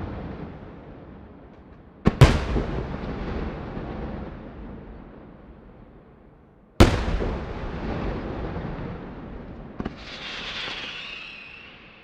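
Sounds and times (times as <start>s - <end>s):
firework double crack: 2.1s - 3.9s, 6.8s - 12.0s
heavy firework bang with echo: 2.1s - 4.4s, 6.8s - 11.4s
firework shells bursting: 9.8s - 12.0s
high hiss: 10.0s - 12.0s.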